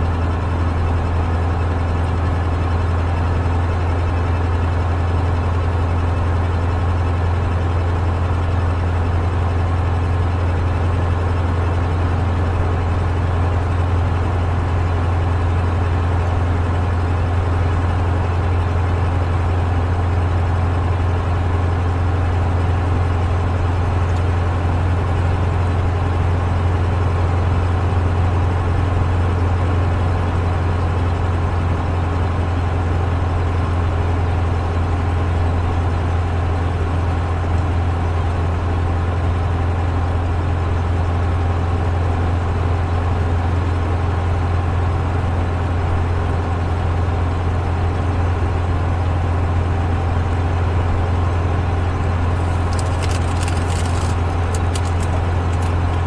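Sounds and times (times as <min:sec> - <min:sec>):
car engine droning: 0:48.1 - 0:56.0
road noise: 0:50.5 - 0:56.0.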